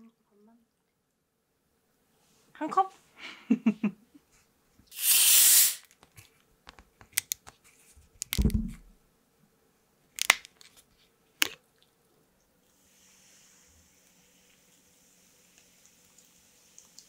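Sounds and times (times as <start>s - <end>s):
carbonation hissing from bottle: 4.9s - 6.0s, 12.7s - 17.0s
dull thump: 8.4s - 9.0s.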